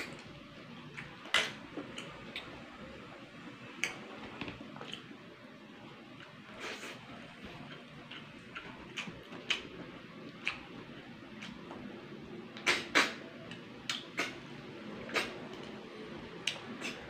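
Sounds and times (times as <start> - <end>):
slurps and mouth smacks: 13.9 - 14.4, 15.0 - 15.5, 16.5 - 17.0.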